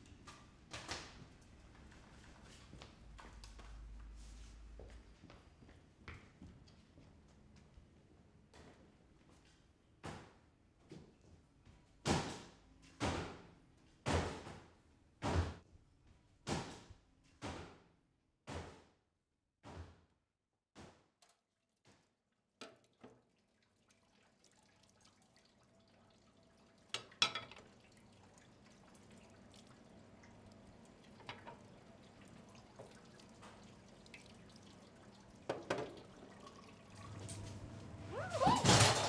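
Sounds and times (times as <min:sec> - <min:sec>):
water running at a sink: 0:22.7 - 0:38.3.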